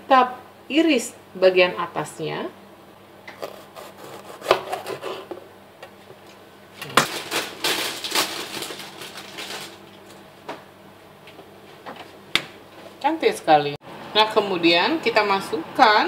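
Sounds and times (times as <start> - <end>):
knife crunching through pepper: 3.3 - 5.3.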